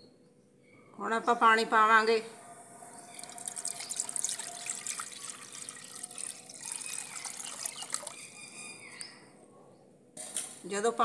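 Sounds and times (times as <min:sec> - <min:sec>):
water pouring into a pot: 0:03.1 - 0:08.2.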